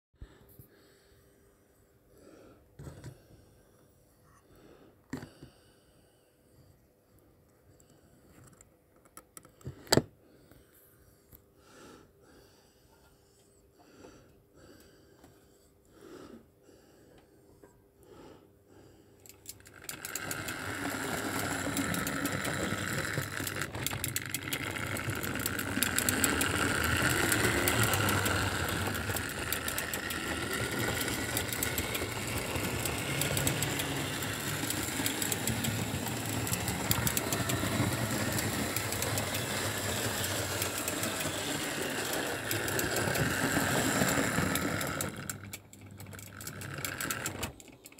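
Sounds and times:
electric motor whir: 19.6 - 47.5
wheels rattling over track joints: 19.6 - 47.9.

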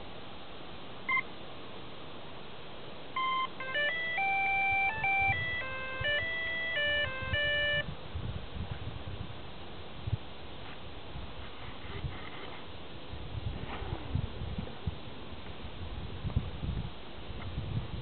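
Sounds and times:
electronic beeps: 3.2 - 7.8.

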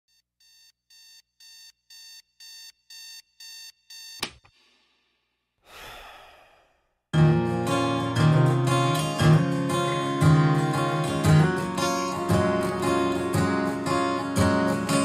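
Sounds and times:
alarm clock beeping: 0.1 - 4.3
sharp click: 4.2 - 4.6
soft breathy rush: 5.6 - 6.9.

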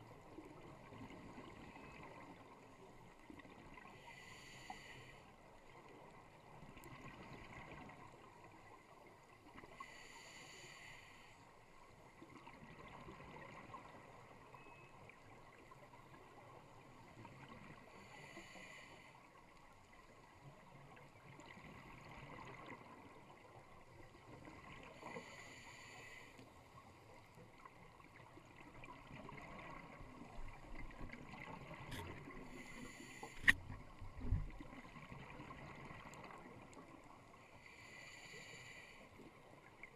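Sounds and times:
muffled regulator hiss: 31.9 - 33.8.

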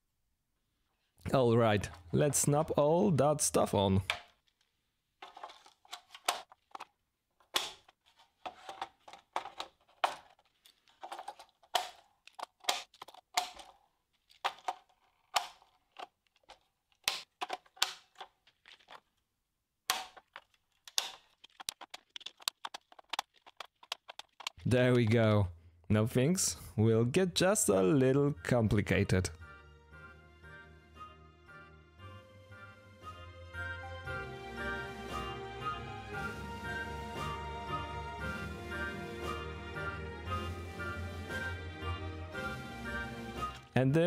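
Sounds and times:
plastic relays clicking onto rails: 5.2 - 19.0.

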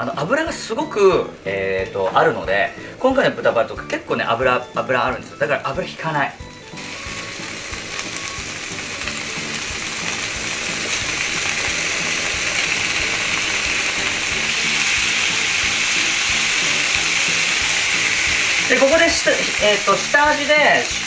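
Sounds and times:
background music: 0.0 - 21.0
pork sizzling in a frying pan: 6.4 - 21.0.

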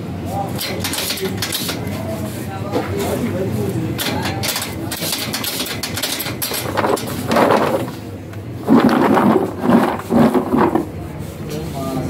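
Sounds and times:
fry cutter clacking: 0.6 - 2.0, 3.9 - 8.0
potato chips rustling in plastic tub: 8.6 - 10.9.

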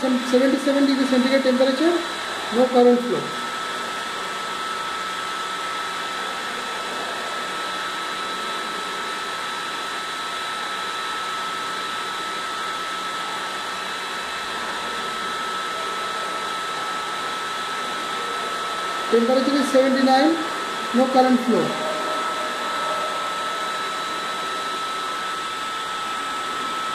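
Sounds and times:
high steady whistle: 21.0 - 26.9.

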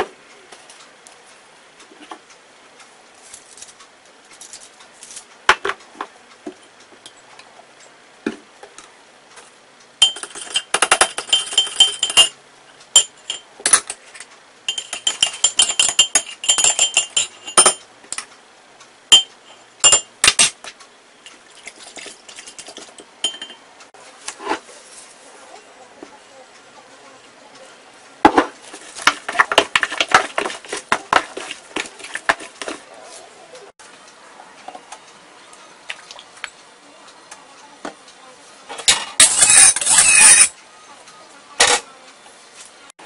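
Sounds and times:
metal spoon clinking glass: 10.0 - 12.3, 13.0 - 13.9, 14.7 - 17.8, 19.1 - 20.5, 23.2 - 23.6, 39.2 - 40.5.

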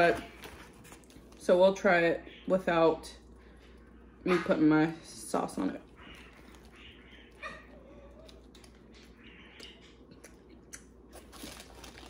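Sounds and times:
soft chewing clicks: 5.8 - 11.3.

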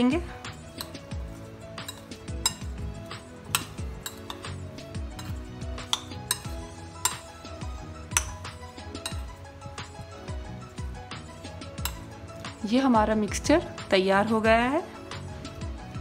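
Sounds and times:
background music: 0.0 - 16.0
spoon clinking against bowl: 0.7 - 1.2, 1.8 - 9.9, 11.7 - 12.1.

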